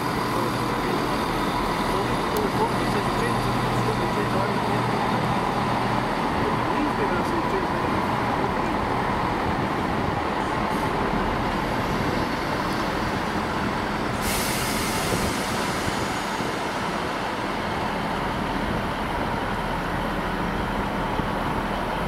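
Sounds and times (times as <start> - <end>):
train engine and wheel drone: 0.0 - 22.0
hiss of released air: 14.1 - 17.2.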